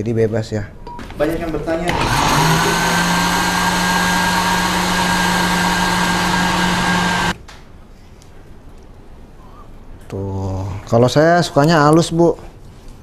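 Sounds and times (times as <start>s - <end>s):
electric blender running: 1.9s - 7.4s.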